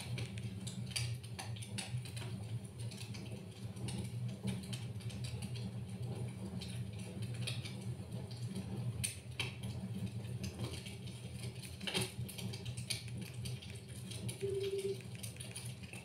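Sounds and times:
crackling wood fire: 0.0s - 16.0s
low steady rumble: 13.0s - 16.0s.

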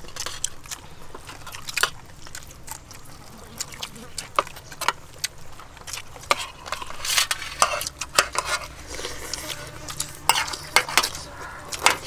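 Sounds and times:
cutlery scraping a metal tray: 6.2s - 12.0s.

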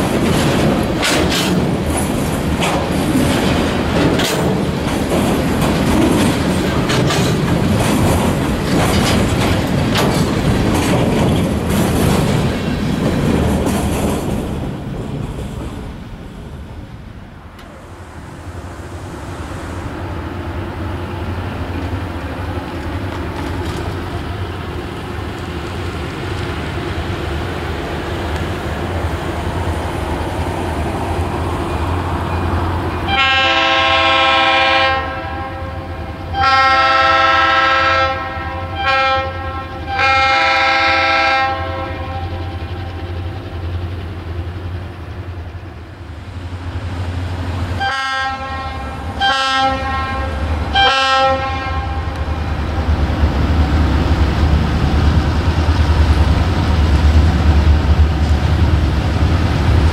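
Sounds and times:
train wheels clicking over rail joints: 0.0s - 19.7s, 20.7s - 34.6s
diesel locomotive engine hum: 0.0s - 59.9s
train horn: 33.1s - 42.6s, 47.8s - 52.3s.

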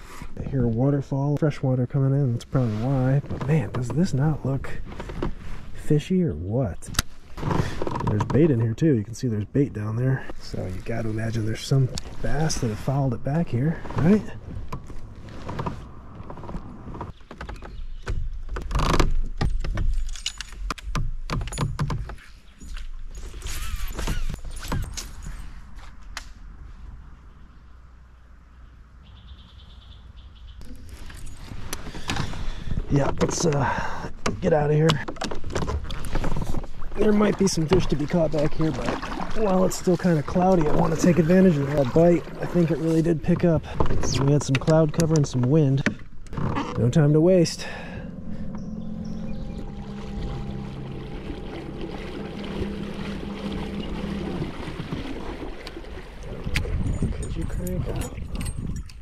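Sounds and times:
water rushing along hull: 30.8s - 45.6s, 46.3s - 58.5s
low steady rumble: 46.0s - 58.8s
bird trilling: 47.9s - 56.0s
electric motor hum: 48.1s - 56.4s.

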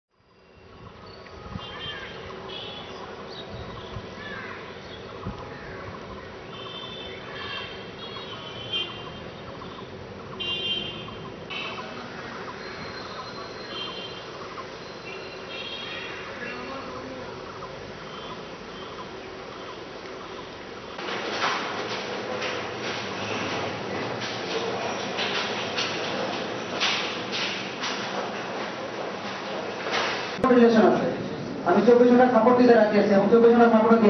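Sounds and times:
steady background hum: 0.2s - 34.0s
birds chirping and calling: 1.0s - 10.4s, 11.0s - 20.6s.

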